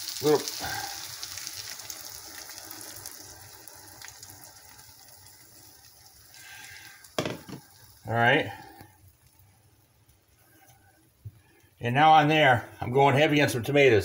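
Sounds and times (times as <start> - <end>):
liquid splashing into a pan: 0.0 - 9.5
frying pan sizzling: 0.0 - 14.0.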